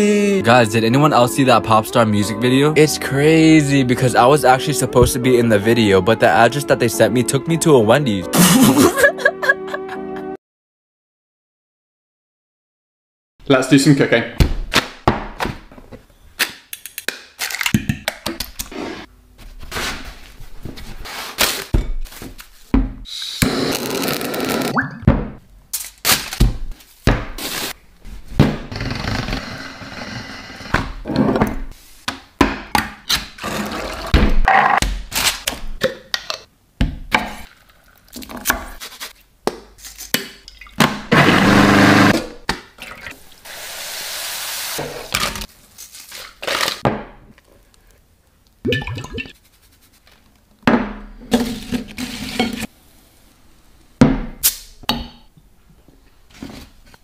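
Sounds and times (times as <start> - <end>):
food processor running: 41.1 - 42.2.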